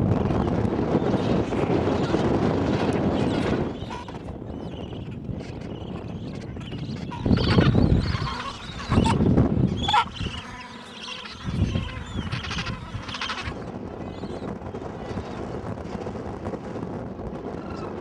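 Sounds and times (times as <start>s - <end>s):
penguins calling: 5.1s - 13.6s.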